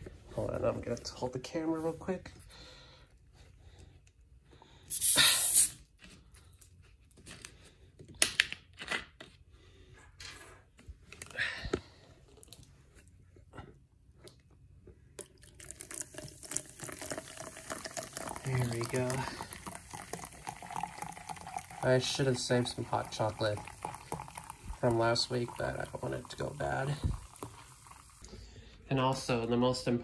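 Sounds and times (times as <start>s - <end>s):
bottle cap hiss: 4.9s - 5.8s
drink pouring and fizzing: 15.2s - 28.3s.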